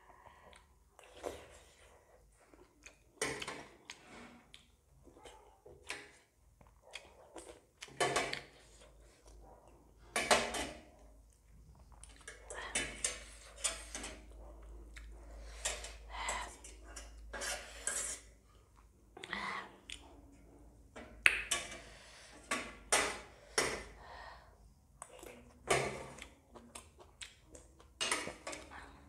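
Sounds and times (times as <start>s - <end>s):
chewing: 0.2s - 9.8s, 11.0s - 17.2s, 25.0s - 28.0s
metal spoon scraping metal plate: 16.9s - 18.3s.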